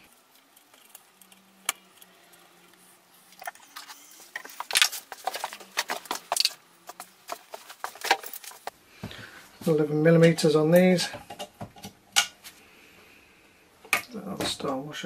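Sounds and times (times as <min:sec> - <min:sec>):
metal parts and tools clinking: 0:03.3 - 0:08.7.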